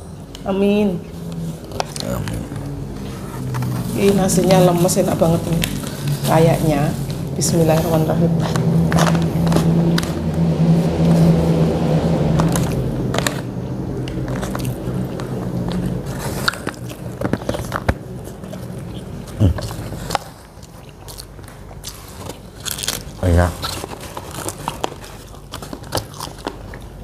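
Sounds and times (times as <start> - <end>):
low hum: 0.0 - 21.8
person chewing food: 1.2 - 4.0, 8.3 - 27.0.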